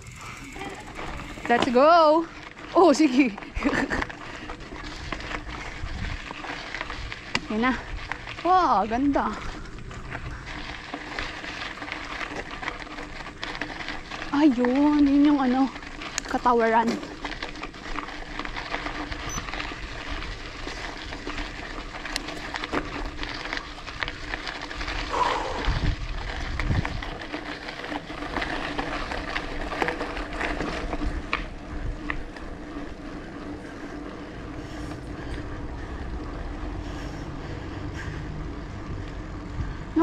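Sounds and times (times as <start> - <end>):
tyres on road: 0.0 - 40.0
wind on microphone: 4.9 - 7.2, 24.8 - 27.2.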